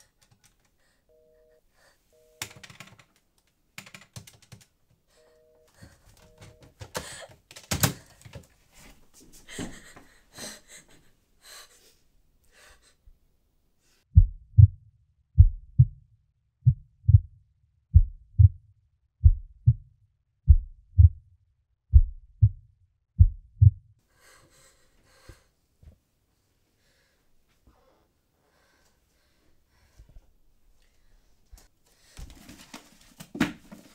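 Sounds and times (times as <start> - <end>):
heartbeat double thumps: 14.2 - 18.6, 19.2 - 19.9, 20.5 - 21.3, 21.9 - 23.9.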